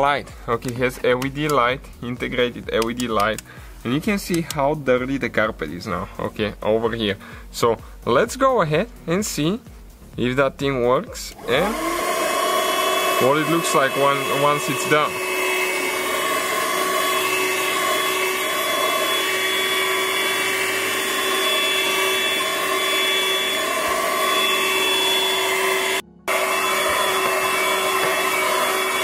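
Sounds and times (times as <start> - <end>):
handheld vacuum motor whine: 11.3 - 29.0.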